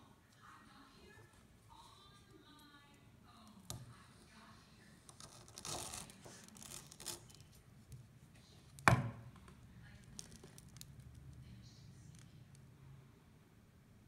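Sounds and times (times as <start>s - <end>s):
knife cutting wafer ball: 5.1s - 7.5s.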